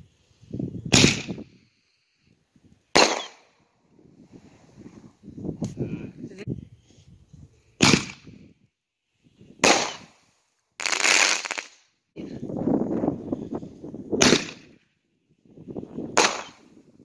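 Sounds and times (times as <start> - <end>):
harsh crackling fireworks: 0.9 - 1.6, 3.0 - 3.6, 7.8 - 8.3, 9.6 - 10.2, 10.8 - 11.8, 14.2 - 14.7, 16.1 - 16.8
firework shell bangs: 3.0 - 3.5.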